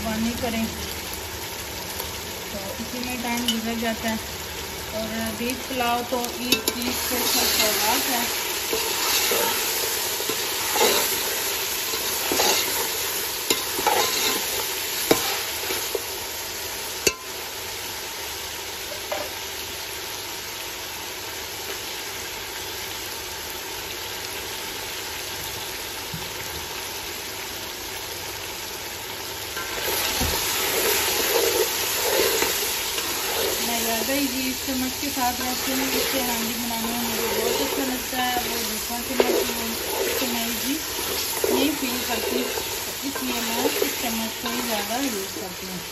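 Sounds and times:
meat sizzling in hot oil: 0.0s - 45.9s
wooden spoon scraping and stirring: 6.5s - 16.1s, 29.6s - 45.4s.

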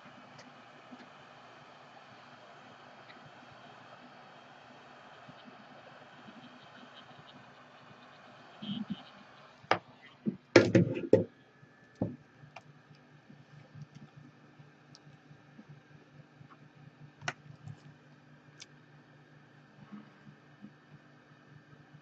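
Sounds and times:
heat gun fan noise: 0.0s - 15.2s
low steady hum: 0.0s - 22.0s.

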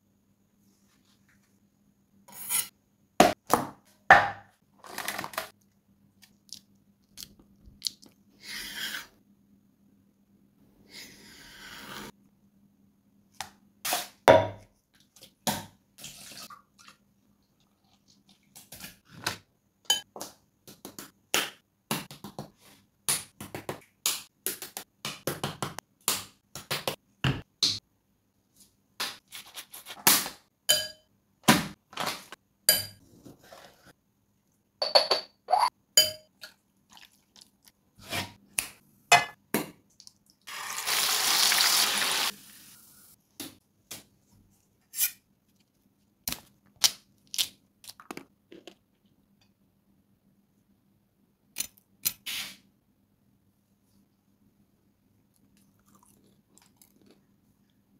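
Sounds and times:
sizzling in hot oil: 40.5s - 42.6s.

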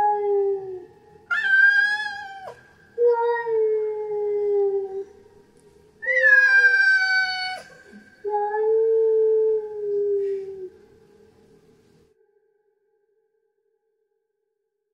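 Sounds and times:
cat yowling: 0.0s - 5.1s, 6.0s - 10.2s.

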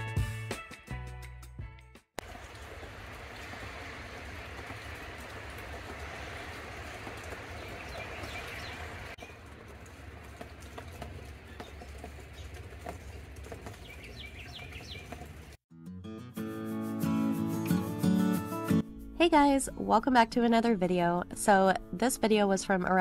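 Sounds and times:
outdoor hiss: 2.2s - 10.3s
birds chirping: 4.3s - 15.6s.

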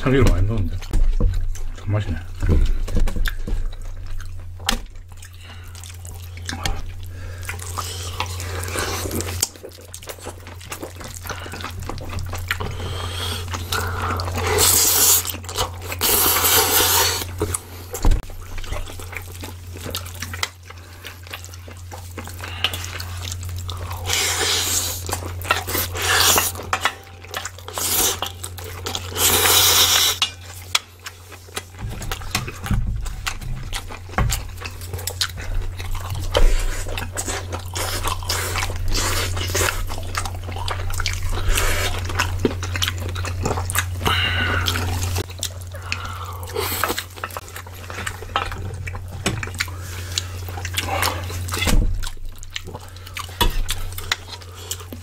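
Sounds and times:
people chewing food: 0.0s - 55.0s.

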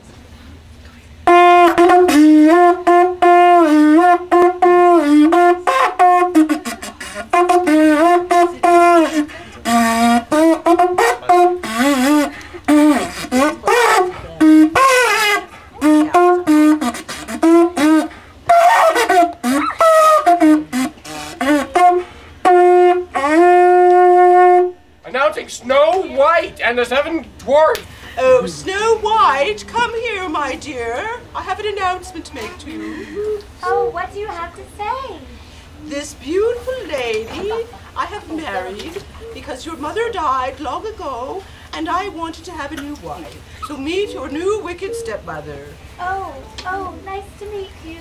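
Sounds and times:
conch shell trumpet honking: 1.2s - 32.5s.

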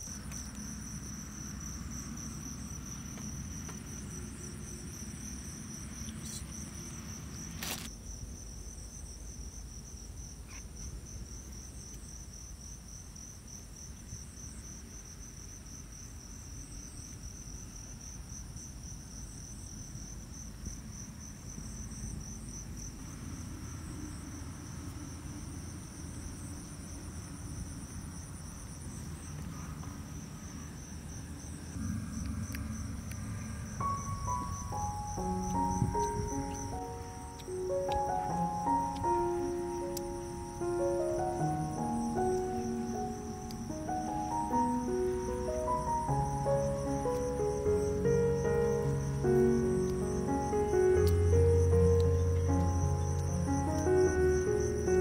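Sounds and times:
crickets chirring: 0.0s - 55.0s
low rumble: 29.7s - 55.0s.

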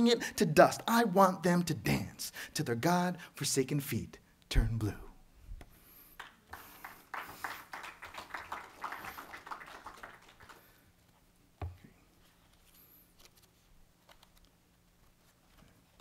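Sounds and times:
paper rustling near microphone: 12.0s - 16.0s.

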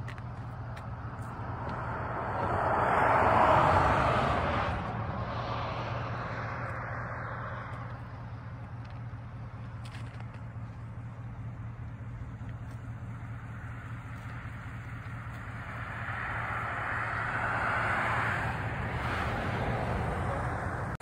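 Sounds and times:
vehicle passing by: 0.8s - 8.2s, 15.2s - 21.0s.

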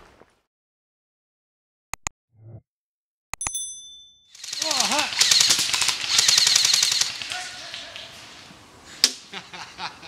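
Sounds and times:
airsoft rifle full-auto burst: 4.3s - 7.6s.

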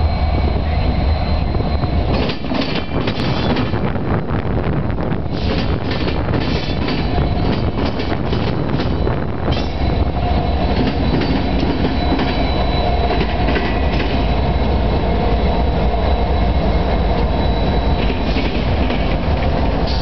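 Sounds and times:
diesel locomotive engine rumble: 0.0s - 20.0s
thin high whine: 9.0s - 18.8s.

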